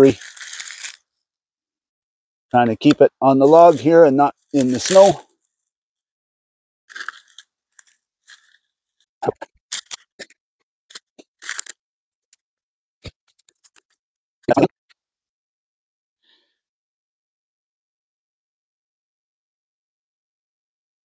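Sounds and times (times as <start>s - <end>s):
crunching and rustling bark: 0.0s - 1.1s, 2.8s - 5.2s, 6.9s - 8.6s.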